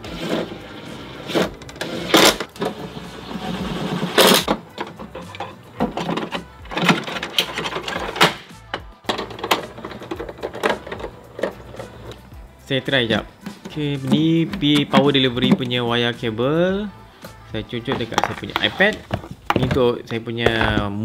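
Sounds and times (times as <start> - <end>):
handling clicks and knocks: 13.4 - 15.8, 17.9 - 21.0.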